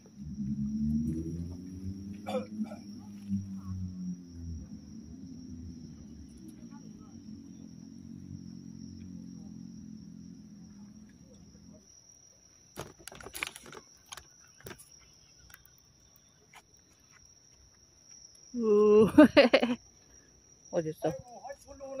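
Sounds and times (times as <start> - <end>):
low steady hum: 0.0 - 12.7.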